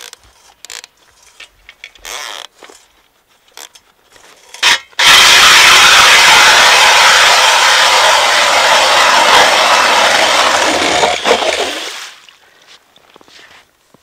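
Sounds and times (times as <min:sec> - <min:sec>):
drill auger grinding into ice: 0:04.6 - 0:12.1.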